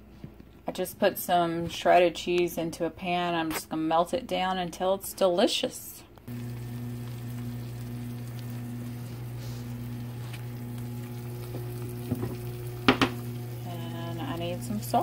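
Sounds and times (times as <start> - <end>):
cheese sizzling in a frying pan: 6.3 - 15.0
steady low hum: 6.3 - 15.0.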